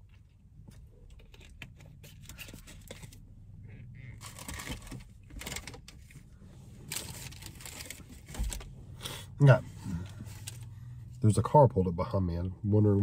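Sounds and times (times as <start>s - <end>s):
crinkling rustle: 4.1s - 8.7s.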